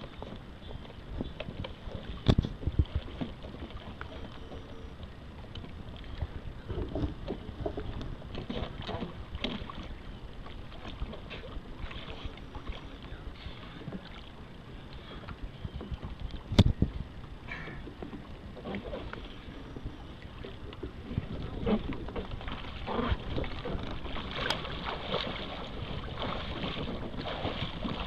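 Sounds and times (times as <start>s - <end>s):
water splashing and lapping: 0.0s - 28.0s.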